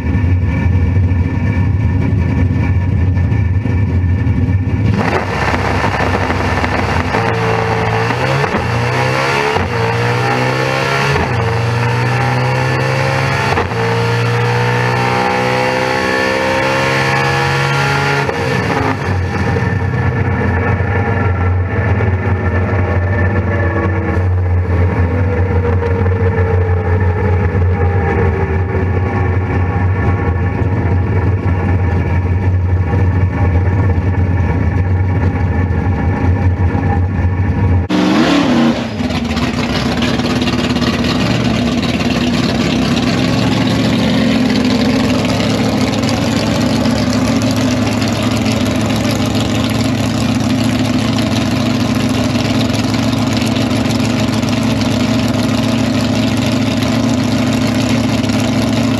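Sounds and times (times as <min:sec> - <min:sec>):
drag race car engines: 0:00.0 - 0:58.9.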